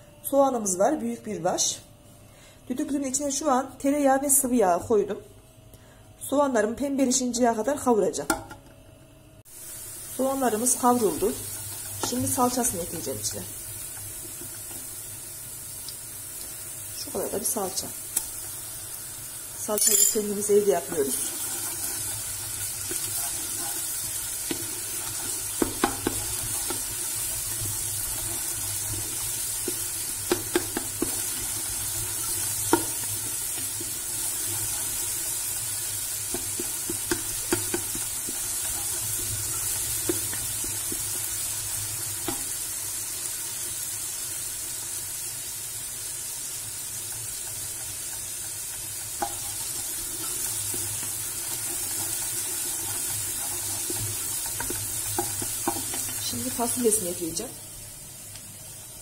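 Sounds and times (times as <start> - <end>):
onions sizzling in oil: 9.4 - 59.0
wooden spoon knocking pot: 25.6 - 26.8, 29.6 - 31.2, 36.3 - 38.4.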